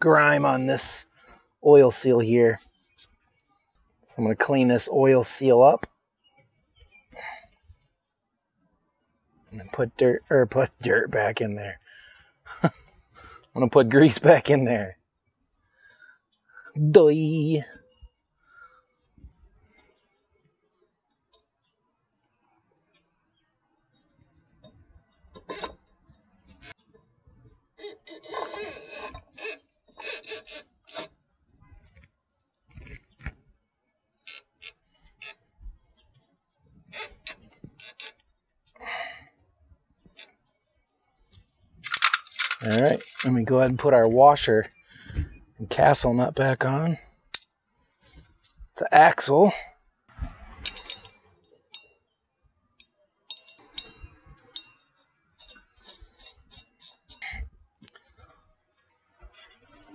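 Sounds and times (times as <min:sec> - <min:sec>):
metal clinks knocks and scrapes: 0:41.8 - 0:43.8, 0:50.3 - 0:52.0, 0:52.8 - 0:58.4, 0:59.2 - 0:59.9.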